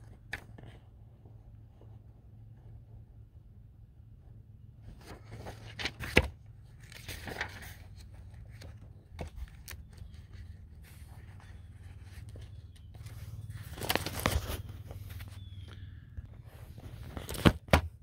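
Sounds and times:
rustling and scraping: 4.8 - 17.7.

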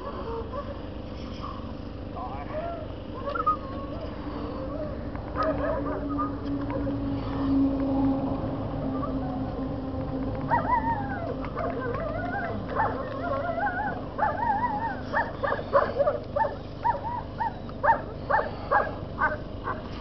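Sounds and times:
young dog whining and yipping: 3.1 - 6.9, 10.4 - 19.8.

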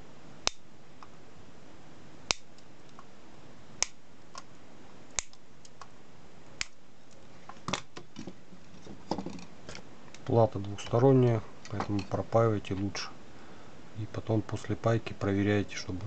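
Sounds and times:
side cutters snipping wire: 5.1 - 5.9.

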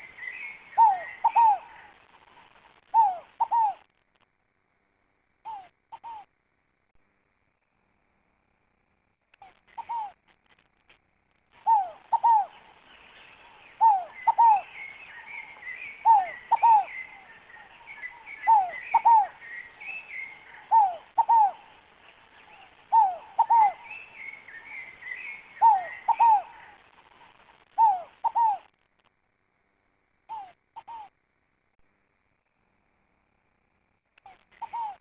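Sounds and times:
dove cooing: 0.0 - 3.9, 5.4 - 6.3, 9.4 - 10.2, 11.5 - 12.8, 13.4 - 28.7, 30.3 - 31.1, 34.2 - 35.0
small birds twittering: 0.0 - 3.9, 11.5 - 28.8, 30.3 - 31.1, 34.2 - 35.0.

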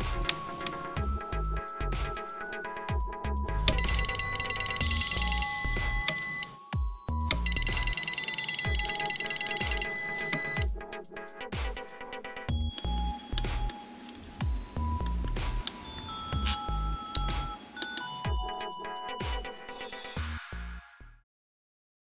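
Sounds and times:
electronic music: 0.0 - 21.0
high-pitched electronic beeps: 3.7 - 10.7, 14.4 - 19.6.

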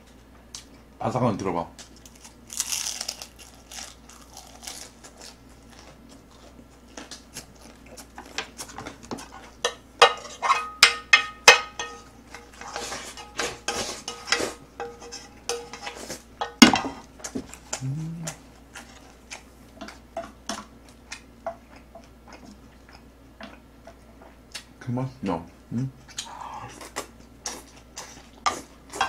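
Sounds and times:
chopsticks scraping and clicking on pan: 8.2 - 16.6.

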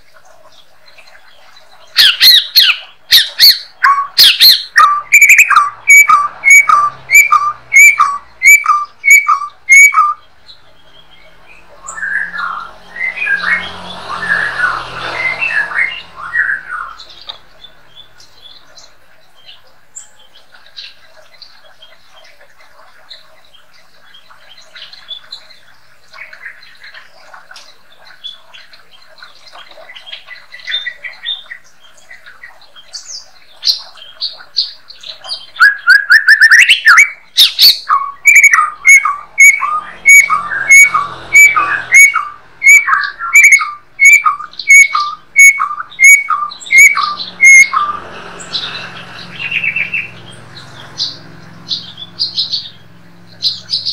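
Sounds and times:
faint bird chirping: 0.0 - 53.9
bird singing whistles: 2.0 - 10.2, 35.3 - 48.0.

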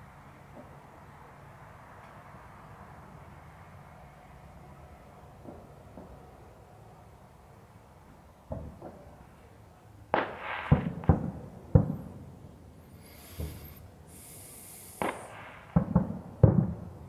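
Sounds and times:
distant fireworks bangs: 8.5 - 9.2, 10.1 - 12.3, 13.0 - 17.0.

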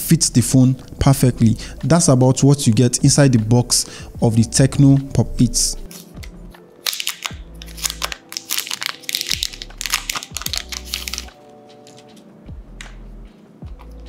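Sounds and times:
plastic film crinkling: 5.9 - 12.2
background music with bass beat: 7.2 - 8.2, 9.3 - 14.0.

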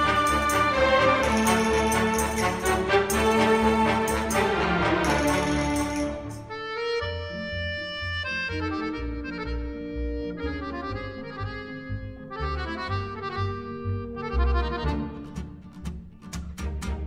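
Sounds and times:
held-note melody: 0.0 - 15.2
pulsing bass: 7.0 - 15.4.

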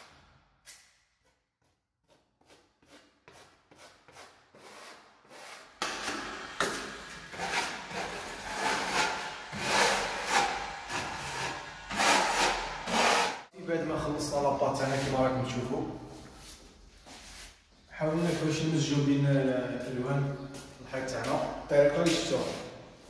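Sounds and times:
spatula scraping paint on wall: 1.6 - 13.5.

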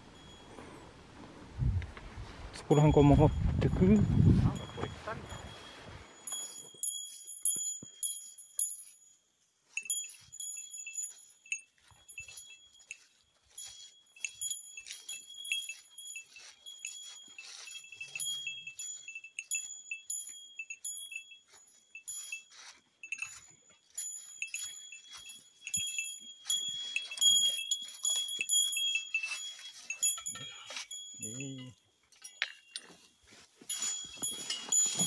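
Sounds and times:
bear bell jingling: 0.0 - 0.9, 2.6 - 35.0
footsteps crunching on trail: 3.3 - 31.3, 31.9 - 35.0.

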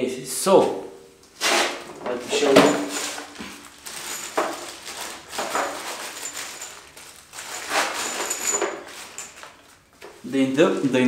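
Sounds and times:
parts rustling in plastic case: 1.7 - 11.0.

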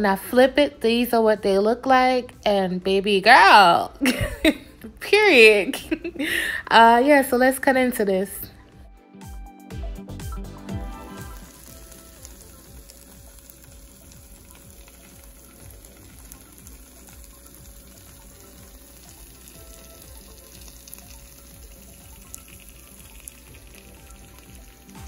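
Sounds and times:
sandwiches sizzling in butter: 10.5 - 25.0.

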